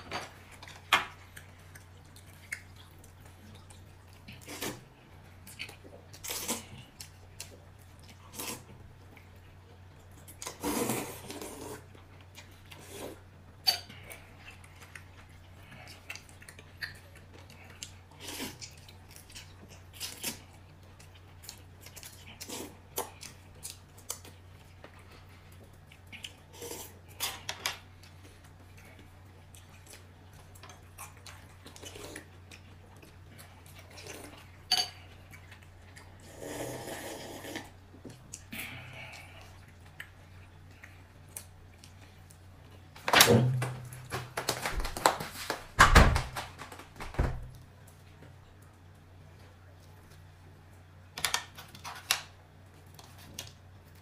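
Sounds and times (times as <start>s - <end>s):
dishes and utensils clinking: 34.7s - 35.0s.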